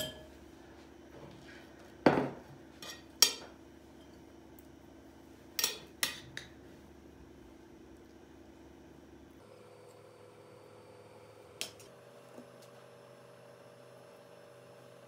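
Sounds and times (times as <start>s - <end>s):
kitchen bowls and utensils clinking: 0.0s - 0.4s, 2.1s - 4.3s, 5.6s - 6.5s.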